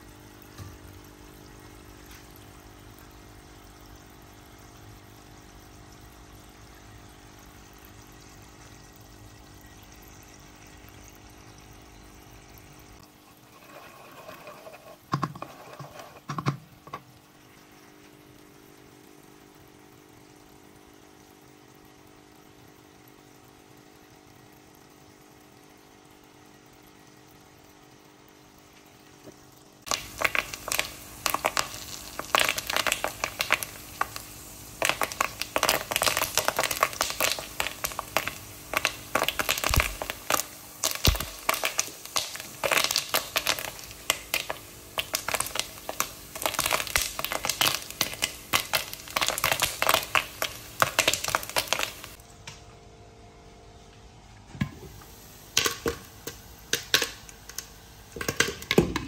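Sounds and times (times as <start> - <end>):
faint steady hum: 0.0 - 59.0
oil sizzling: 0.0 - 59.0
popcorn popping: 5.6 - 17.2, 29.2 - 52.6, 54.6 - 59.0.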